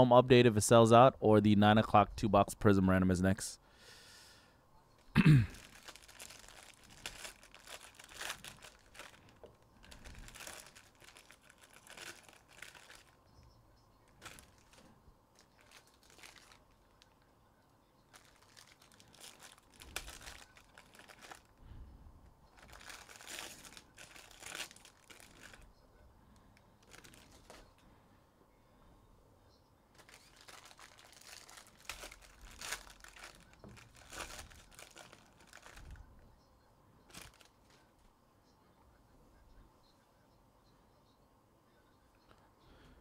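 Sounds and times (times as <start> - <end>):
wrappers torn and crinkled: 5.5 - 13.2, 14.1 - 17.2, 18.1 - 21.6, 22.5 - 25.7, 26.8 - 27.6, 29.9 - 36.1, 37.1 - 37.7.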